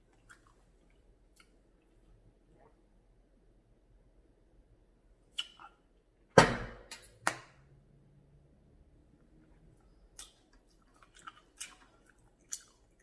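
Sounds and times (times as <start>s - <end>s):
person chewing food: 0.0s - 2.7s, 9.6s - 13.0s.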